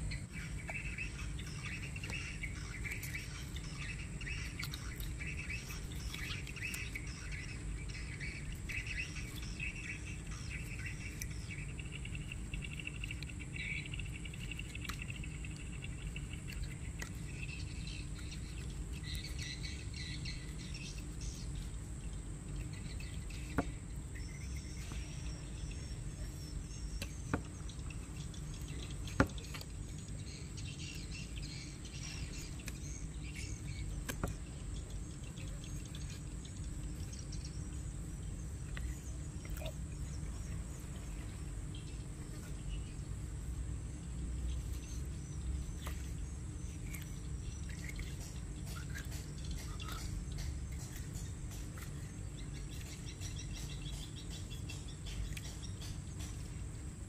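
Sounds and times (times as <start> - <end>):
birds chirping: 0.0 - 57.0
insect drone: 0.0 - 57.0
low background rumble: 0.0 - 57.0.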